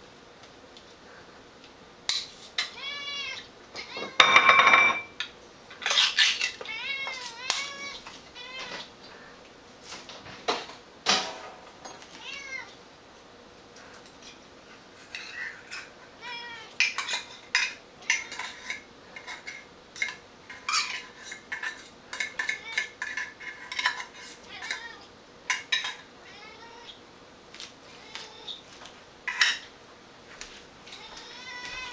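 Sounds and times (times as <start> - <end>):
cat meowing: 2.7 - 4.4, 6.6 - 8.9, 12.2 - 12.8, 16.2 - 16.8, 24.4 - 25.1, 26.2 - 27.0, 30.9 - 31.9.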